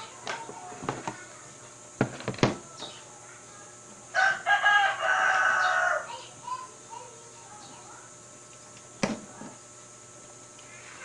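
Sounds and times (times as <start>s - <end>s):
rooster crowing: 4.1s - 6.2s.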